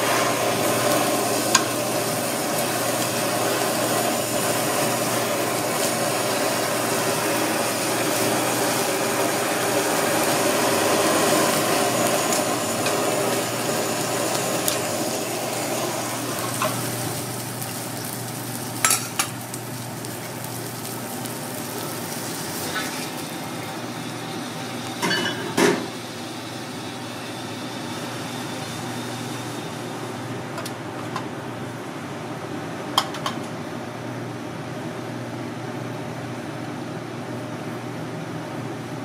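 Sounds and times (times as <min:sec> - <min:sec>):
meat sizzling on a griddle: 0:00.0 - 0:25.5
blowtorch hissing: 0:00.0 - 0:30.2.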